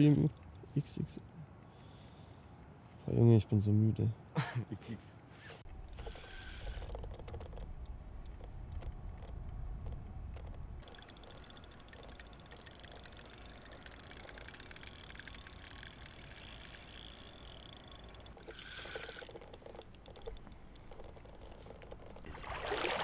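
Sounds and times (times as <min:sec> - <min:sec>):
fishing reel gears ticking: 0:00.0 - 0:01.0, 0:05.8 - 0:08.8, 0:10.8 - 0:22.2.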